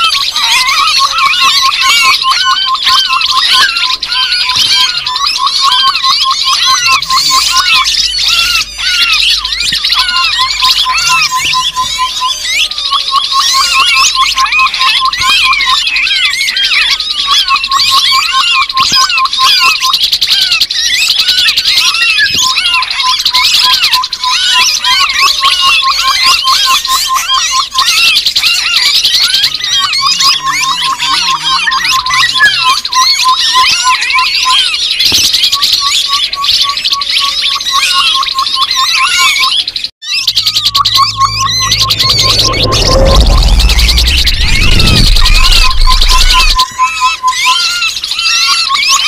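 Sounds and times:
quick evenly spaced bird notes: 0.0 - 36.8, 37.8 - 49.0
birds chattering: 0.0 - 49.0
high rising and falling chirps: 40.0 - 47.4.

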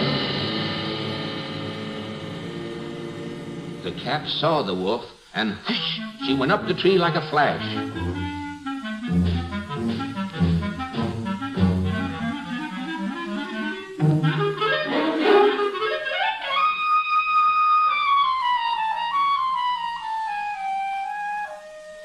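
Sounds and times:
high woodwind note sliding down: 5.8 - 16.0
orchestra playing agitated music: 9.1 - 12.7, 13.3 - 16.1.

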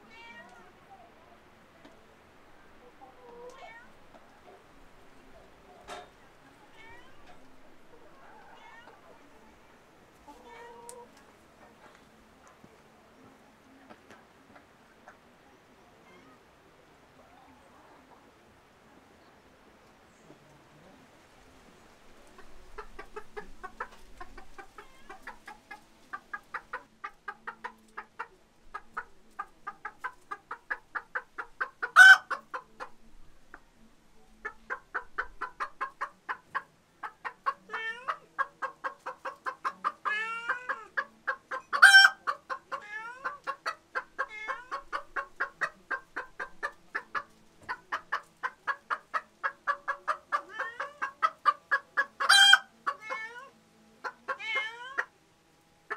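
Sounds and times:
chickens clucking: 0.0 - 55.2.

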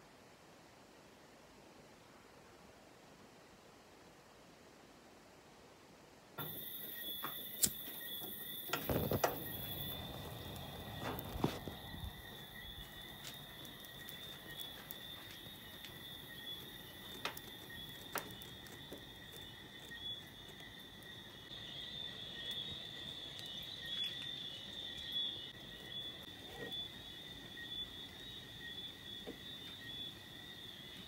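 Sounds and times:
insects chirring: 6.4 - 31.0.

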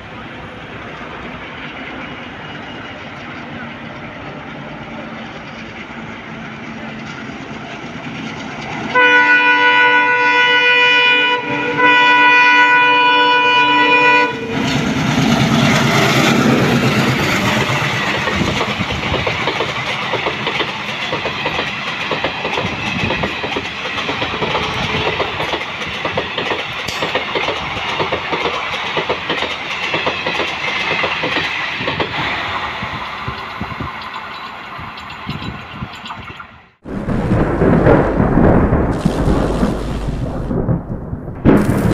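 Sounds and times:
locomotive horn blasts: 8.9 - 14.6
coaches rattling over rail joints: 14.5 - 36.6.

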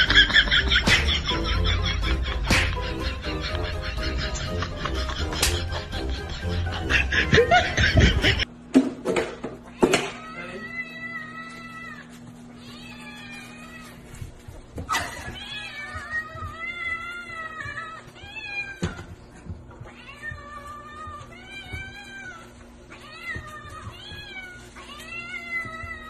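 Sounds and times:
cat meowing: 9.7 - 14.1.

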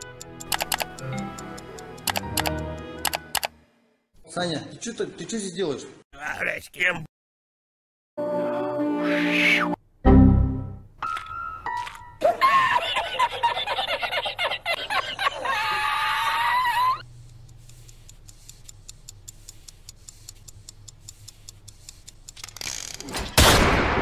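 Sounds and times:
cartoon character wailing: 15.4 - 17.0
faint fast ticking: 17.0 - 22.5
revolver gunshot: 23.2 - 24.0.

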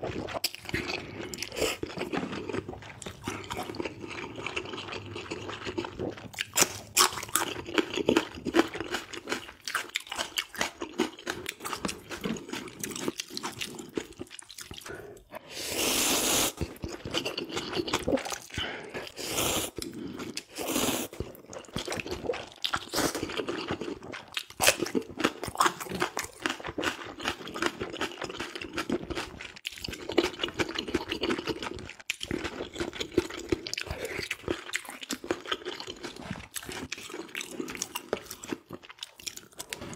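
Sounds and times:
wet chewing and crunching: 0.0 - 15.4, 16.5 - 39.9
slurping noodles: 12.2 - 23.8.

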